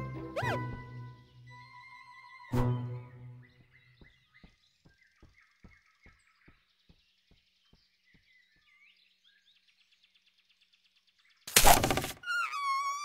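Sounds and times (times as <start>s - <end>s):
faint bird chirps: 0.4s - 13.0s
soft pattering animal steps: 3.4s - 9.1s.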